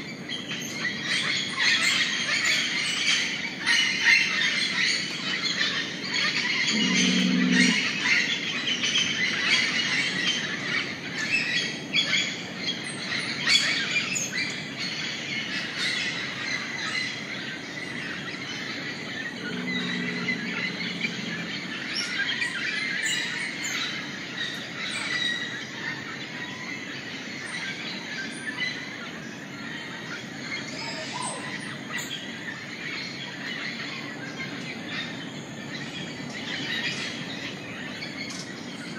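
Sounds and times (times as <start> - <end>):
birds chirping and calling: 0.0 - 38.9
short low bird calls: 6.6 - 8.0, 19.0 - 22.4.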